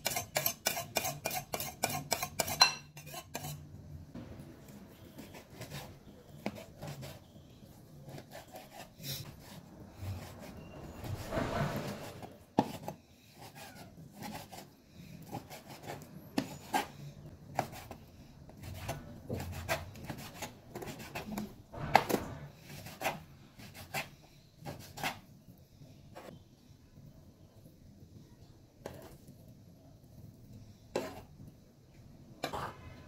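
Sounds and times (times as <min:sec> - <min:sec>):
blade scraping board: 0:08.1 - 0:14.6.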